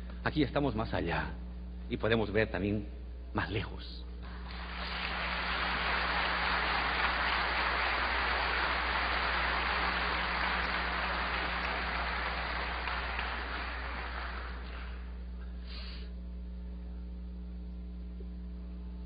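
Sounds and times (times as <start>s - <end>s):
low mains hum: 0.0s - 19.0s
large audience applauding: 4.3s - 15.3s.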